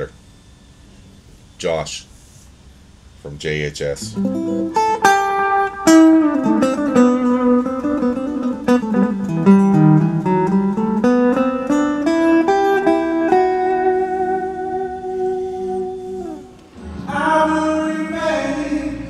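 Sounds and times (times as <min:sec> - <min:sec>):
clean electric guitar notes: 0:04.0 - 0:19.0.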